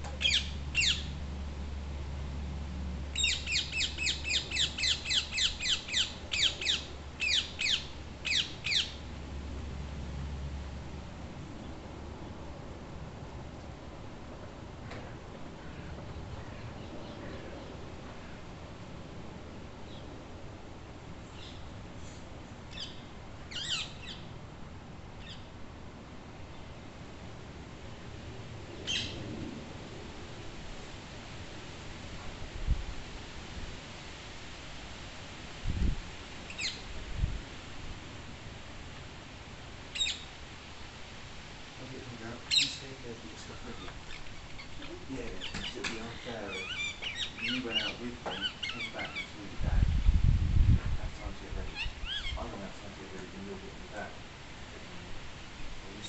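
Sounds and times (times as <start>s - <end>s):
parakeet screeching calls: 0.2s - 1.1s, 3.2s - 9.0s, 22.7s - 24.2s, 28.9s - 29.2s, 36.5s - 36.8s, 40.0s - 40.2s, 42.5s - 42.9s, 43.6s - 49.4s, 51.7s - 52.4s.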